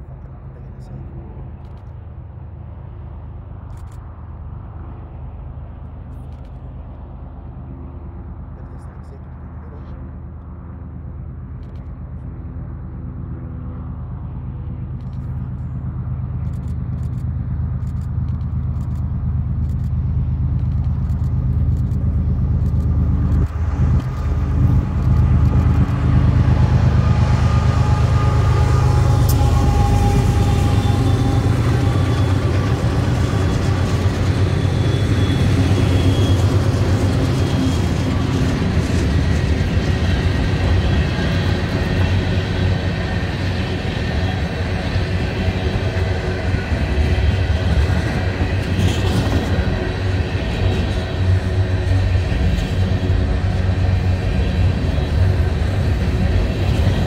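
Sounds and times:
diesel locomotive engines: 0.0s - 57.0s
tank cars rolling by: 15.0s - 57.0s
high steady whine: 17.9s - 57.0s.

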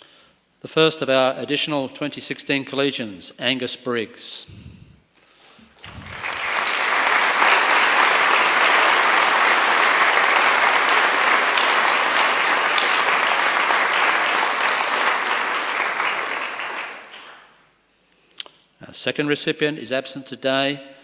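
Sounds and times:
audience applauding: 5.7s - 17.6s.

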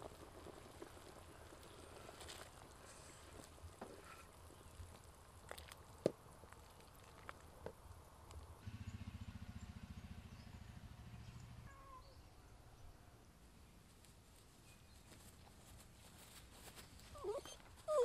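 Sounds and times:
small dog whimpering: 17.2s - 18.0s.

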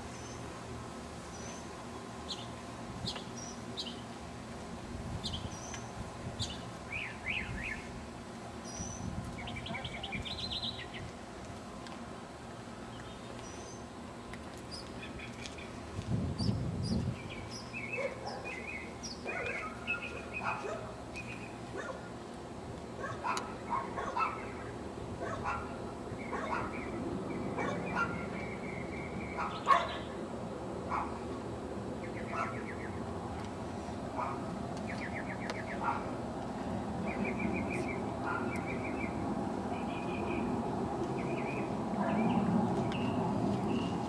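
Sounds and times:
small birds chirping: 1.2s - 4.1s, 5.2s - 7.9s, 8.6s - 11.2s, 12.8s - 22.1s, 23.0s - 30.2s, 34.2s - 36.2s, 37.0s - 44.0s
dog barking: 18.0s - 18.6s, 19.3s - 19.8s, 20.4s - 20.9s, 21.8s - 22.1s, 23.0s - 24.5s, 25.2s - 26.8s, 27.6s - 28.2s, 29.4s - 30.0s, 30.9s - 31.2s, 32.3s - 32.6s, 35.8s - 36.1s.

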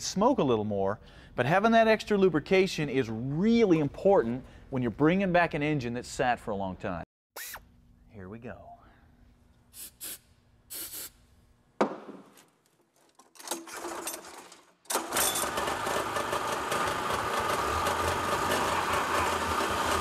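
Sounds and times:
snowmobile engine running: 16.4s - 20.0s.

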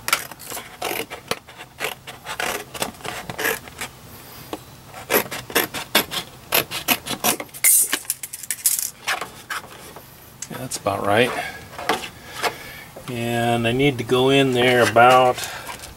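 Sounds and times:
scissors snipping cardboard: 5.0s - 7.5s.

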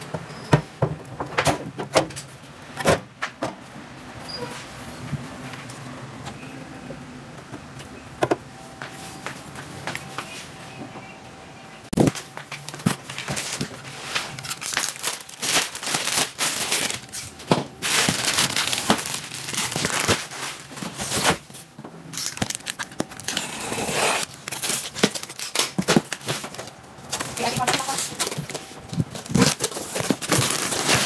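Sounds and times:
plastic bag crinkling: 12.1s - 31.0s.

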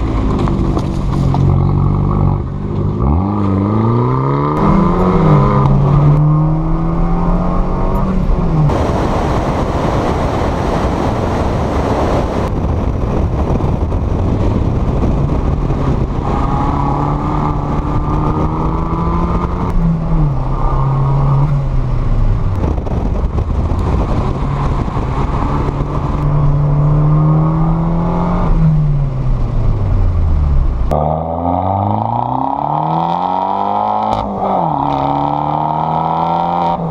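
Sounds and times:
car engine revving: 0.0s - 36.9s
wind and road noise: 0.0s - 36.9s.

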